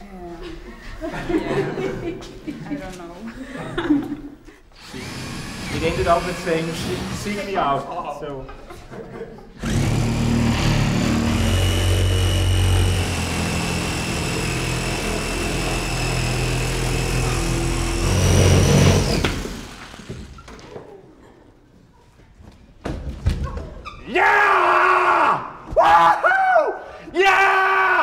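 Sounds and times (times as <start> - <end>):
small motor whining: 4.8 - 7.5, 9.6 - 20.4.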